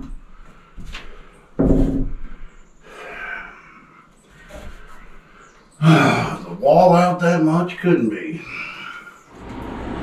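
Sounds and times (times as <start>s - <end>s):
loud wooden thump: 1.6s - 2.2s
wooden stud knocking and bumping: 1.6s - 2.4s.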